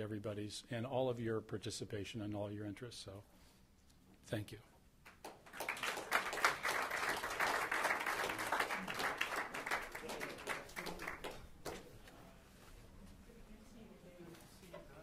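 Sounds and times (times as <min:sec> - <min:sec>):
audience applauding: 0:05.1 - 0:11.8.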